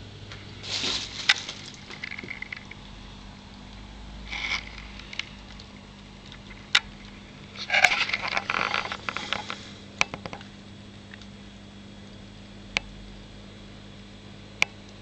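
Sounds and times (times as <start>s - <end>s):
steady low hum: 0.0s - 15.0s
rustling scrape: 0.6s - 2.4s, 4.3s - 5.2s, 7.6s - 9.8s.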